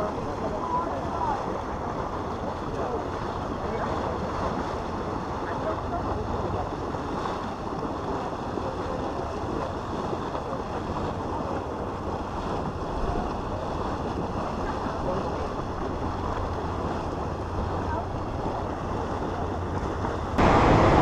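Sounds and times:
wind noise on microphone: 0:00.0 - 0:21.0
low rumble: 0:15.3 - 0:21.0.

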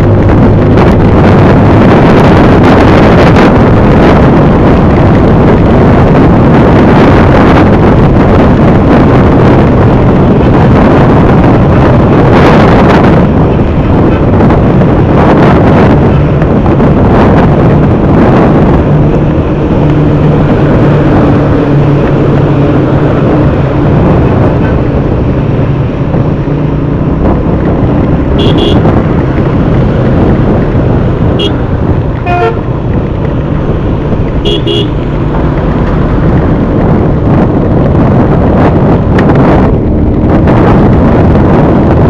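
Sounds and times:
motorcycle engine humming: 0:00.0 - 0:42.0
wind and road noise: 0:00.0 - 0:42.0
vehicle horn toots: 0:28.4 - 0:28.9, 0:31.4 - 0:31.6, 0:32.2 - 0:32.6, 0:34.4 - 0:35.0.

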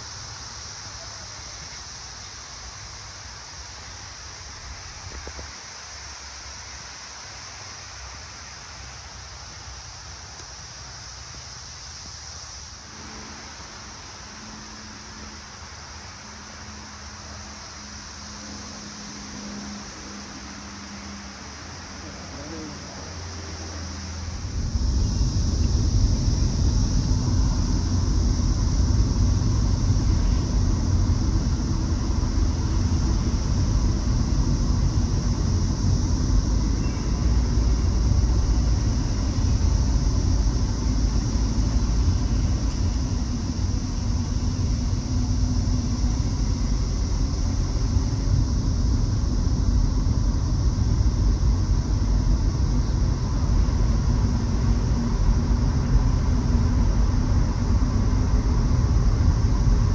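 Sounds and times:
tyre hiss: 0:00.0 - 0:59.9
car interior low rumble: 0:21.4 - 0:59.9.

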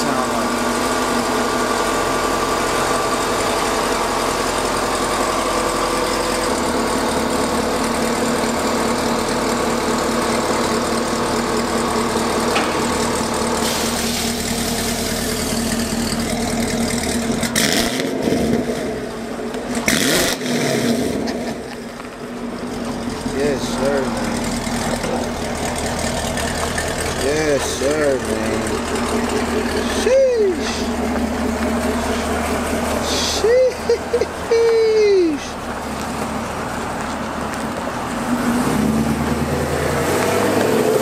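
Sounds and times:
car exhaust idling: 0:00.0 - 0:41.0
loud exhaust bursts: 0:12.6 - 0:19.0, 0:23.4 - 0:35.6.

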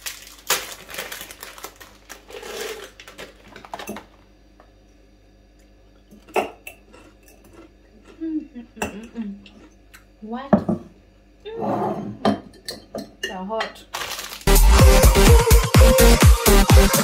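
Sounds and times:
snacks rattling into glass jar: 0:00.0 - 0:04.1, 0:13.9 - 0:14.5
plastic packet crinkling: 0:00.0 - 0:04.2, 0:13.9 - 0:14.5.

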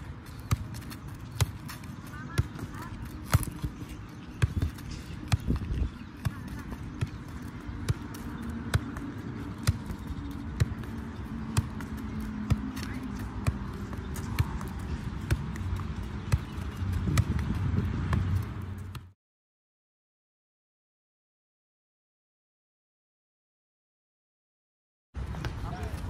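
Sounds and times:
football thudding against body and feet: 0:00.4 - 0:03.8.

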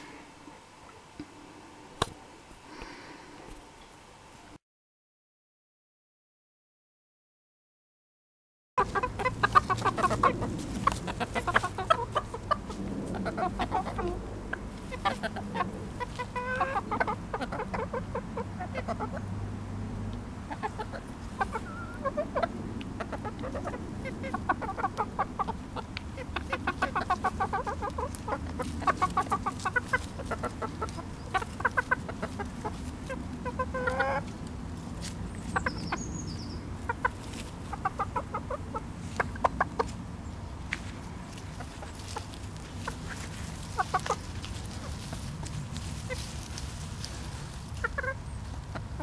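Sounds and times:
hens clucking: 0:08.8 - 0:19.4, 0:20.1 - 0:40.1, 0:40.7 - 0:49.0.

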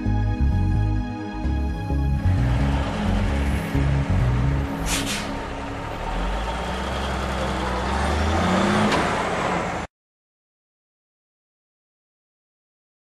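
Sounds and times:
truck diesel engine pulling away: 0:01.5 - 0:09.9
tyre hiss on wet road: 0:04.8 - 0:05.4.

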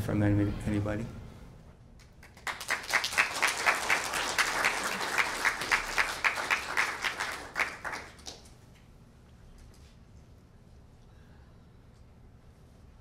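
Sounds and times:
audience applauding: 0:02.2 - 0:08.5.

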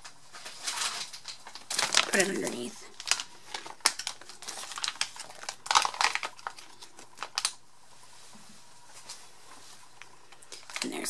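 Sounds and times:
plastic bag crinkling: 0:00.0 - 0:07.6, 0:09.8 - 0:11.0.

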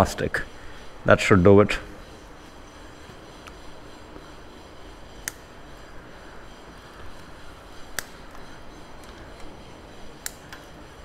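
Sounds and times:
quiet background hum: 0:00.0 - 0:11.0.

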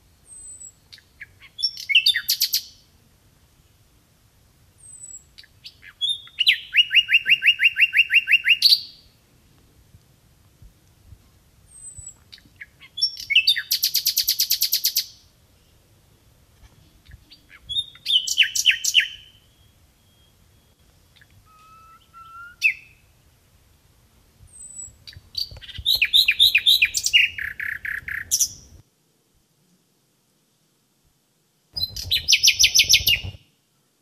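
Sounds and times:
nightingale singing: 0:00.1 - 0:02.9, 0:04.8 - 0:09.2, 0:11.7 - 0:15.9, 0:16.6 - 0:23.4, 0:24.4 - 0:28.8, 0:31.8 - 0:33.4.

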